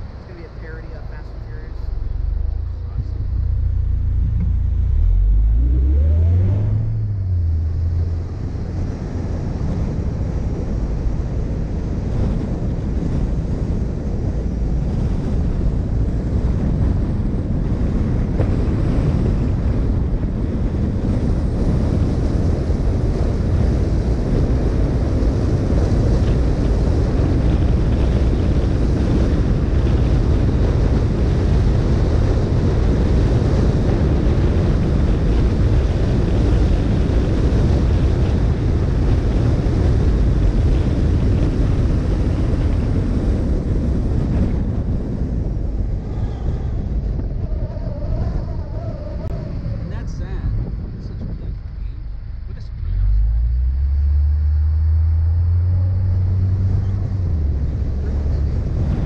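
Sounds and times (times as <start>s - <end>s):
car engine revving: 0.0s - 12.9s, 52.4s - 59.0s
tyre and wind noise: 0.0s - 59.0s
wind rumbling on microphone: 0.0s - 59.0s.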